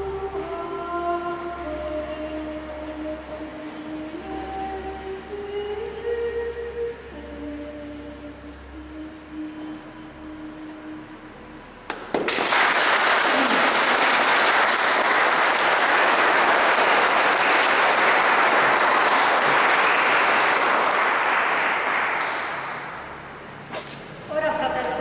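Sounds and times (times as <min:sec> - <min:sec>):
congregation applauding: 0:11.9 - 0:23.2.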